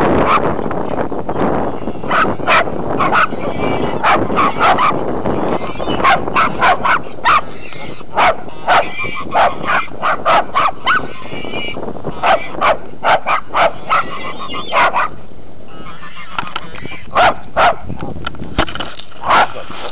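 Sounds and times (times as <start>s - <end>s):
small dogs yapping: 0.2s - 0.5s, 2.0s - 15.2s, 19.2s - 19.6s.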